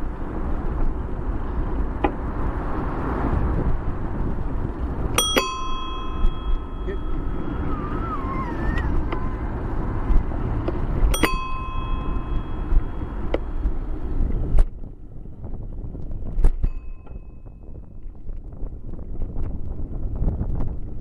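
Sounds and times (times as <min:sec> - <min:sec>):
wind buffeting microphone: 0:00.0 - 0:21.0
bicycle bell ding: 0:05.2 - 0:07.7, 0:11.1 - 0:13.8, 0:16.6 - 0:17.8
short wavering squeal: 0:05.5 - 0:09.4.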